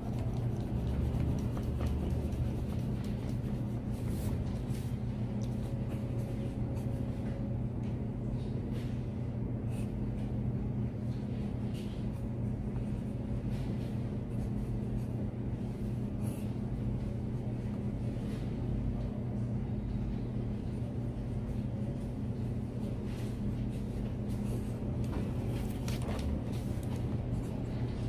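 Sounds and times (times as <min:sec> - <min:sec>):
pen scratching on paper: 0:00.0 - 0:04.5
steady low hum: 0:00.0 - 0:28.0.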